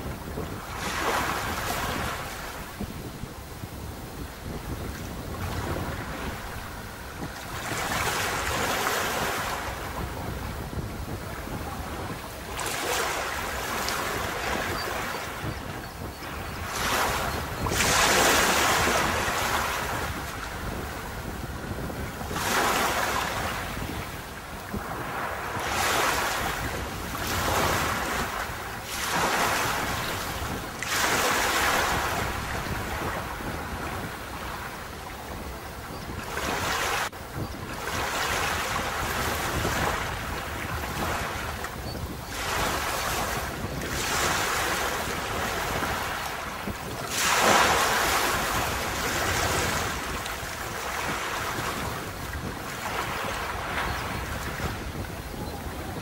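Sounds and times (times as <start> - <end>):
sea waves breaking on beach: 0.0 - 56.0.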